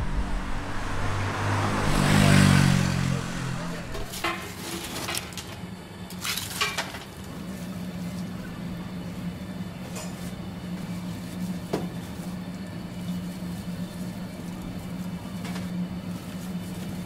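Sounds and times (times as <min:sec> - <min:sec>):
steady low hum: 0:00.0 - 0:04.3
leaves rustling and clinking on metal: 0:03.9 - 0:08.4, 0:09.8 - 0:17.0.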